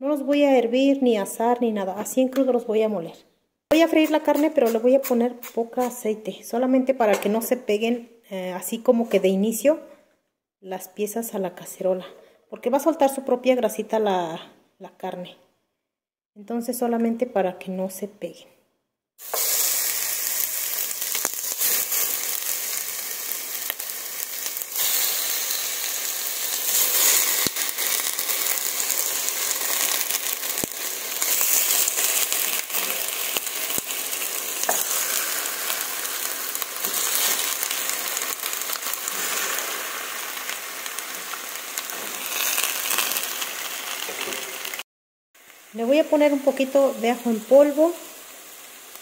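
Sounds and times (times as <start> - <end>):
meat sizzling in a pot: 3.7 - 6.1, 19.2 - 49.0.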